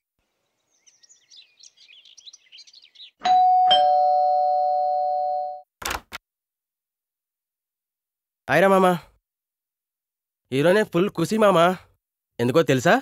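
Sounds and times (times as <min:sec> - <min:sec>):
faint bird chirps: 0:00.2 - 0:03.2
ding-dong doorbell: 0:03.2 - 0:05.6.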